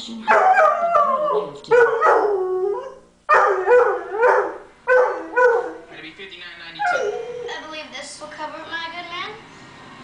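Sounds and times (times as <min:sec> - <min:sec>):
dog howling: 0:00.3 - 0:06.0, 0:06.8 - 0:07.6
television commercial: 0:05.9 - 0:09.6.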